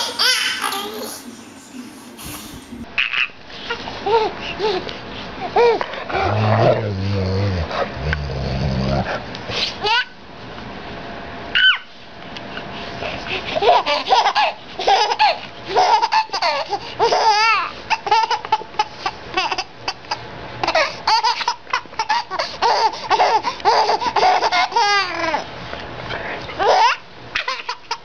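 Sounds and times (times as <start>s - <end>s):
baby laughing: 0.0s - 1.4s, 2.2s - 5.9s, 9.8s - 10.2s, 13.3s - 25.5s, 26.6s - 28.0s.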